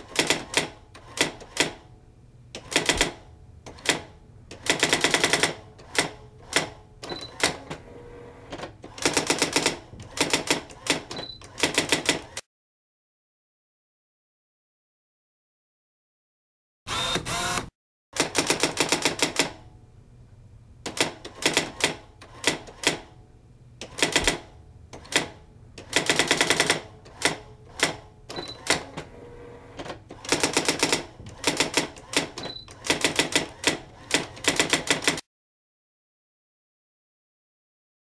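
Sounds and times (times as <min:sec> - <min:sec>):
typewriter key clacks: 0:30.2 - 0:35.2.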